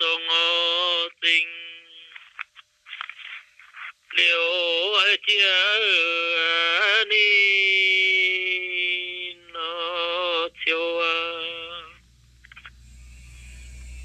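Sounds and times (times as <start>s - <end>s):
person singing unaccompanied: 0.0s - 2.2s, 4.1s - 12.0s.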